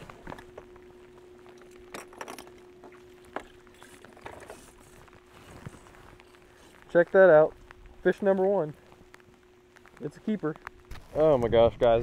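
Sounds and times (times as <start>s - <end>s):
faint steady hum: 0.0s - 12.0s
light rain patter: 5.0s - 11.9s.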